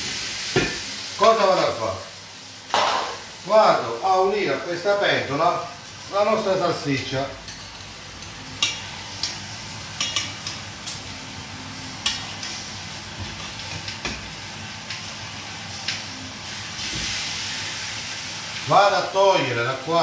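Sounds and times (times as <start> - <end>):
sausage sizzling in sauce: 0.0 - 20.0.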